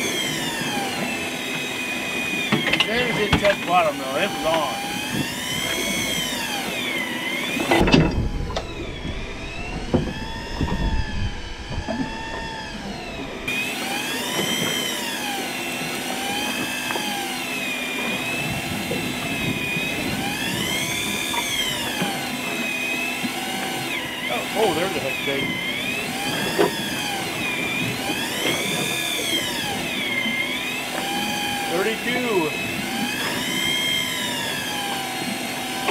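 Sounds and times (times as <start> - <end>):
low rumbling: 0.0 - 15.2
electric fishing reel whine: 0.0 - 35.9.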